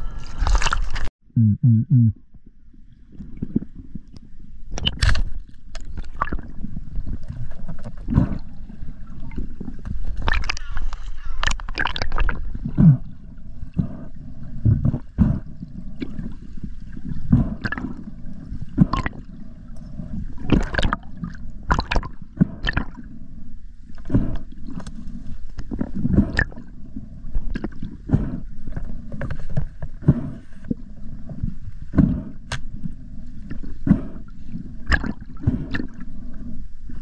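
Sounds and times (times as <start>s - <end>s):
muffled underwater water rush: 2.3s - 37.0s.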